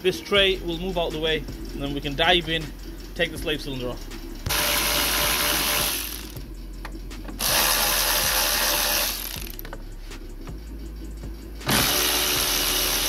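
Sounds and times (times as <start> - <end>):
electric ratchet spinning bolts: 4.5 - 6.4, 7.3 - 9.8, 11.6 - 13.0
ratchet clicks: 4.5 - 9.9.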